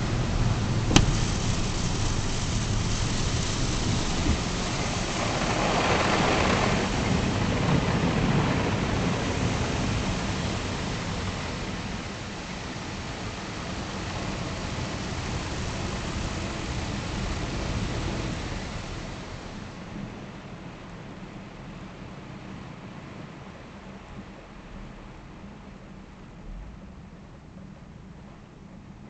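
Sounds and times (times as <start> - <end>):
water jets spraying truck: 0.0 - 20.8
low rumble: 24.2 - 28.9.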